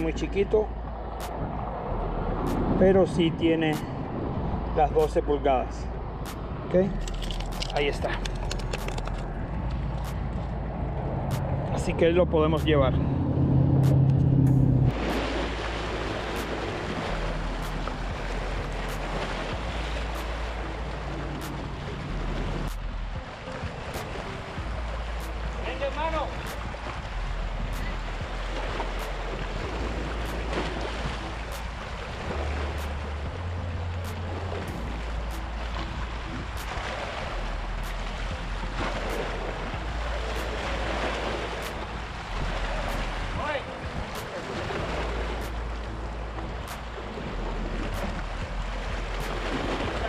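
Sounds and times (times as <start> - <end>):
wind on microphone: 0.0 - 5.1, 5.7 - 25.6, 26.2 - 50.0
waves washing on rocks: 14.9 - 50.0.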